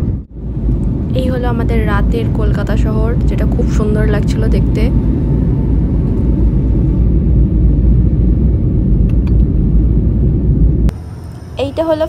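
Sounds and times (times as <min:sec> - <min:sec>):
airliner cabin engine rumble: 0:00.0 - 0:12.0.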